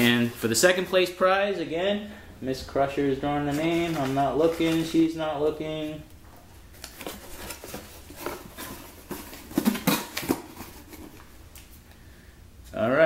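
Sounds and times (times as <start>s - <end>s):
paper slips rustling in a box: 3.5s - 5.2s.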